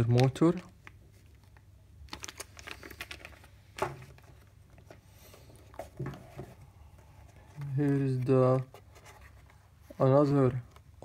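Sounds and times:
plastic bags crinkling: 0.0 - 4.4.

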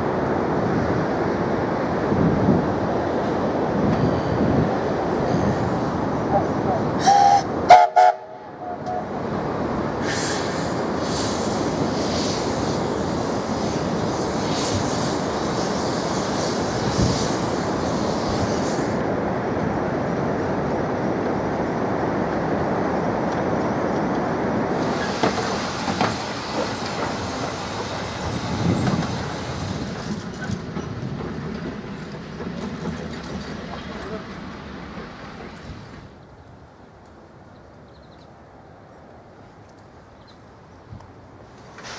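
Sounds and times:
train running along track: 0.0 - 41.9
steam whistle blasts: 7.0 - 9.1.

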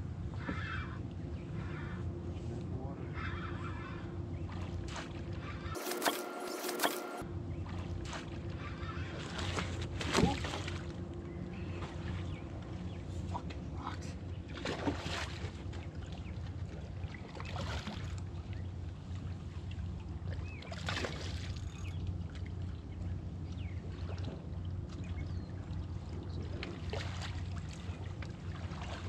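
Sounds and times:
steady low rumble: 7.2 - 17.4
water splashing against rocks: 9.2 - 10.9.

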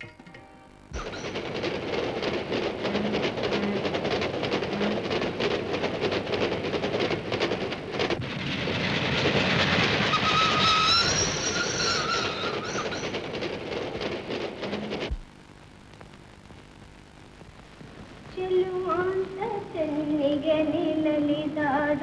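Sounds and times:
train wheels clattering over rail joints: 1.0 - 15.2.

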